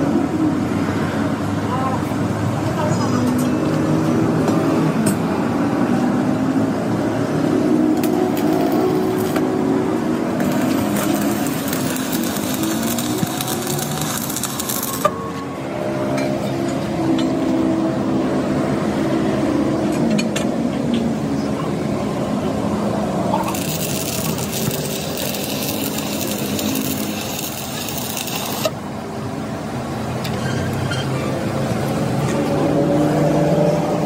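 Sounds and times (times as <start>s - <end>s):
engine running: 3.6s - 20.0s, 21.8s - 30.2s.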